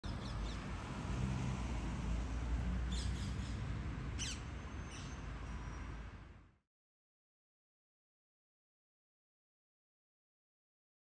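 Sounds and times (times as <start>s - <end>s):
street traffic rumble: 0.0s - 6.6s
parakeets calling: 4.2s - 5.2s.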